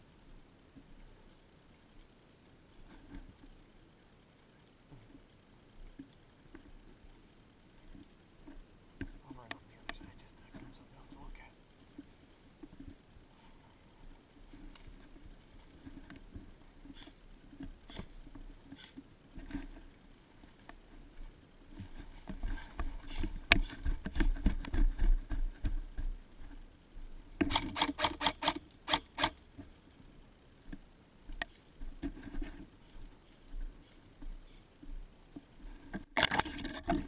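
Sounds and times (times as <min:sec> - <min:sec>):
sharp clicks: 0:27.4 - 0:29.4.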